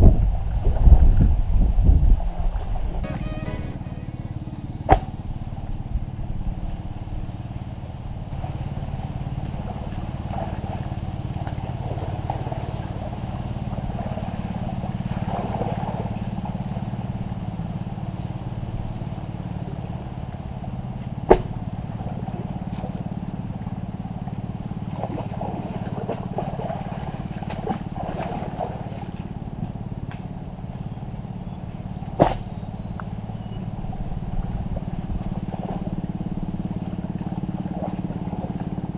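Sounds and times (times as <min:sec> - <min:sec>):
small engine running: 0:32.7 - 0:38.9.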